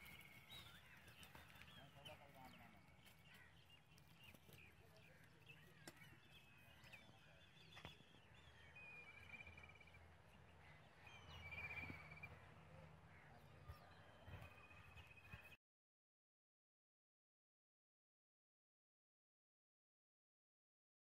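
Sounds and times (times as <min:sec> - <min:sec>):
distant birds chirping: 0:00.0 - 0:15.6.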